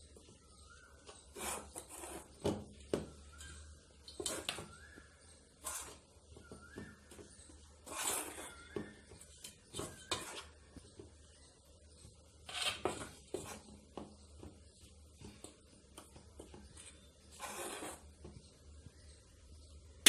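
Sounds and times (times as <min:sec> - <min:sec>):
metal spoon scraping steel bowl: 0:17.3 - 0:18.1.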